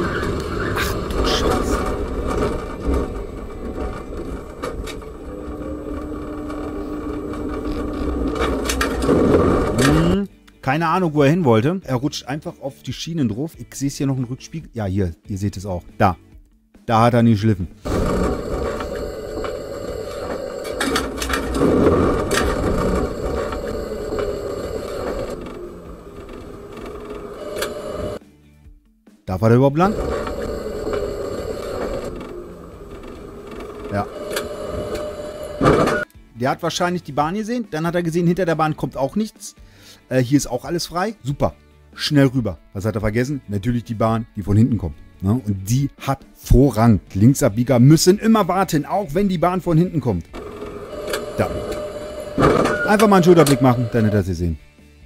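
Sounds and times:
tram rumbling on rails: 0.0 - 6.2
tram rolling rumble: 0.0 - 8.4, 17.9 - 28.2
steady hum: 17.9 - 28.2, 29.9 - 36.0.

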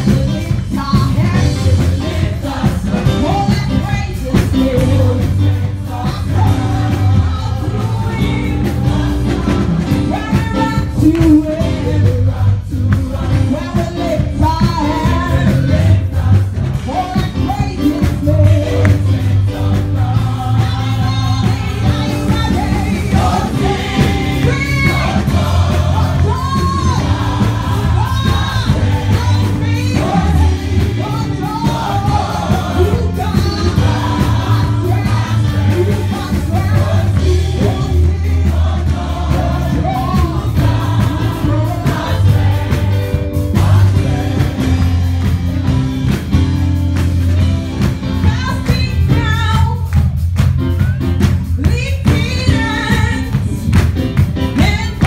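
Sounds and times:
band with bass and drums: 0.0 - 55.0
choir singing: 1.4 - 3.6, 4.2 - 10.4, 11.3 - 16.9, 17.8 - 46.4.

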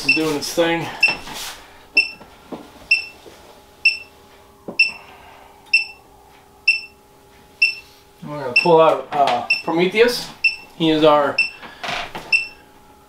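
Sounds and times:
alarm beeping: 0.0 - 0.4, 1.0 - 1.2, 2.0 - 2.2, 2.9 - 3.2, 3.8 - 11.6, 12.3 - 12.7
faint steady hum: 0.0 - 13.0.

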